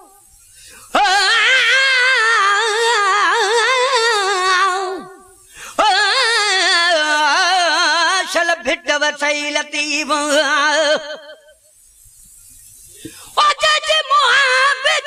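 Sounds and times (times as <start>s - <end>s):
person singing wordless notes: 0.9s - 11.5s, 13.4s - 15.0s.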